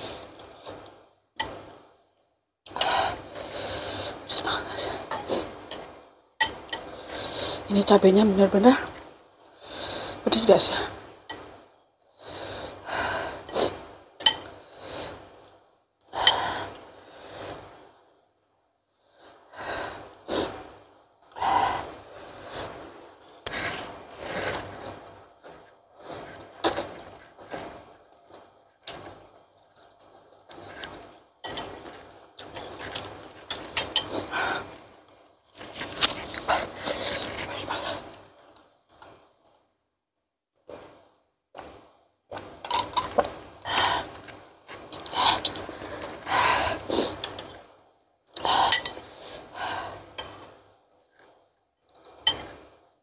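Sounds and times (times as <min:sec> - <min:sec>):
cutlery clinking on bowl: 0:14.2 - 0:14.5, 0:33.5 - 0:34.2, 0:52.2 - 0:52.6.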